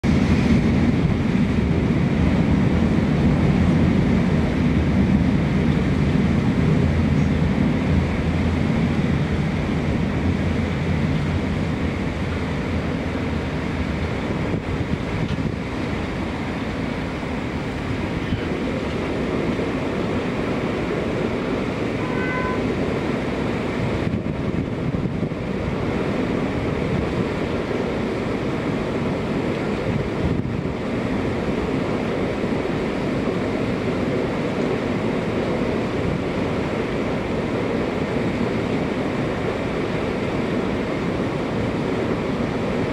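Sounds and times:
train wheels rumbling on rail: 0:00.0 - 0:42.9
brief high tone: 0:22.0 - 0:22.8.

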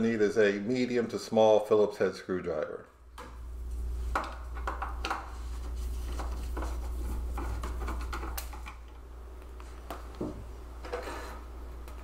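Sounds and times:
steady low hum: 0:02.7 - 0:12.0.

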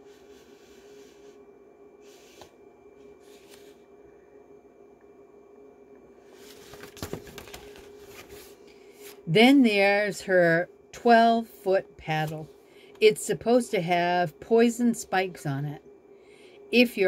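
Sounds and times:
low hum of room tone: 0:00.0 - 0:17.0
paper pages rustling: 0:03.2 - 0:03.8, 0:06.3 - 0:09.2.

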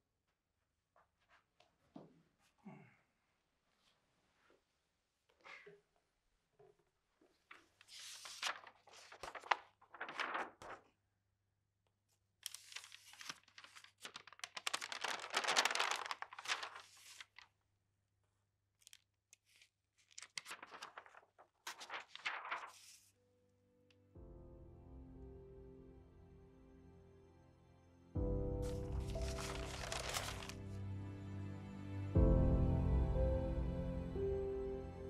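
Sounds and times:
paper pages rustling: 0:07.4 - 0:11.0, 0:12.4 - 0:17.6, 0:18.8 - 0:23.2, 0:28.6 - 0:30.7.

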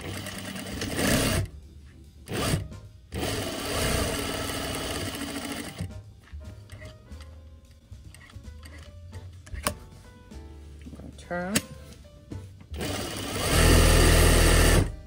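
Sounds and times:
sewing machine stitching: 0:00.0 - 0:01.5, 0:02.3 - 0:05.8, 0:12.8 - 0:14.9.

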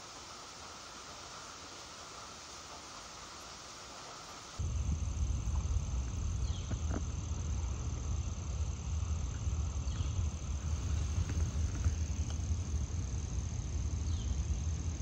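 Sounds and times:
high insect trill: 0:00.0 - 0:15.0
low rumble on microphone: 0:04.6 - 0:15.0.

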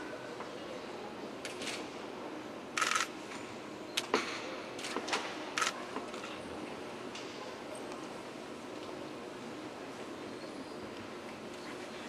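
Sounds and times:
camera shutters clicking: 0:02.8 - 0:03.1.

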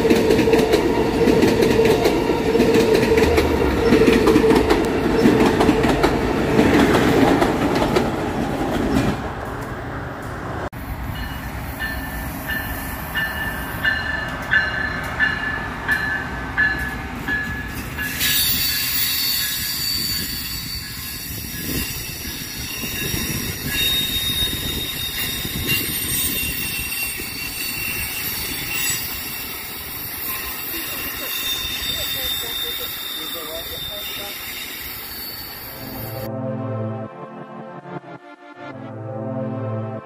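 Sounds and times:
passenger train rolling past: 0:00.0 - 0:37.1
train wheel squeal: 0:17.5 - 0:36.3.

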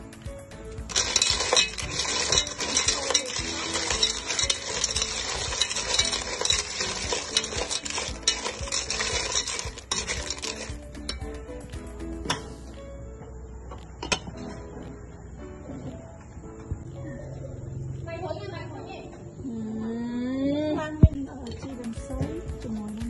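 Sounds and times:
sizzling: 0:00.0 - 0:12.8
shells clattering in metal pot: 0:00.8 - 0:12.4.

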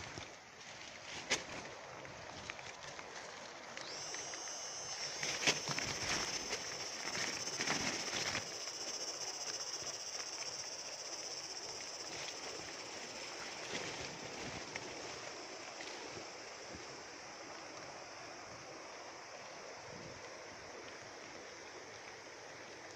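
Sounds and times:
high-pitched outdoor hiss: 0:00.0 - 0:22.9
leaves rustling against phone: 0:02.7 - 0:16.3.

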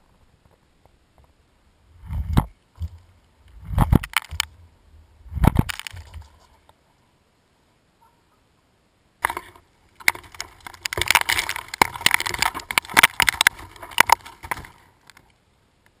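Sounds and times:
dry leaves crackling and rustling: 0:09.2 - 0:15.3.

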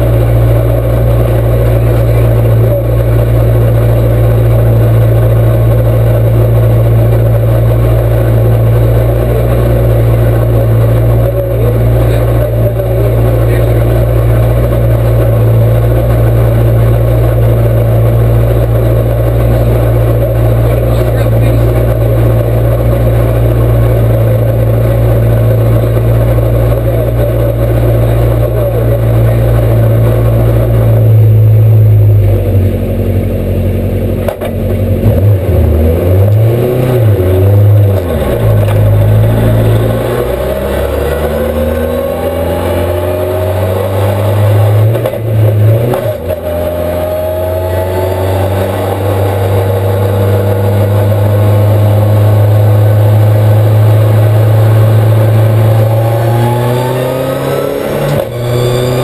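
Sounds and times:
race car engine idling and revving: 0:00.0 - 0:59.0.

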